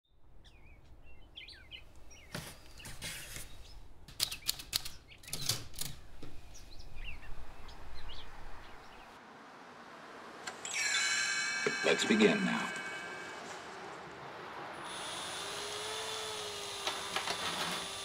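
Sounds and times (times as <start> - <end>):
small birds chirping: 0.4 - 9.2.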